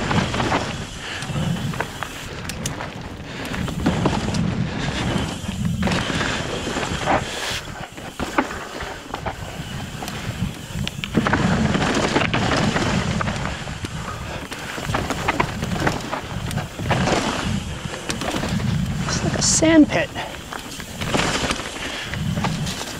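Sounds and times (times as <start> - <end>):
wind buffeting microphone: 0.0 - 8.2, 9.1 - 21.0, 22.0 - 22.9
bike clicks and rattles: 0.0 - 22.9
mountain bike rolling over rock: 0.0 - 22.9.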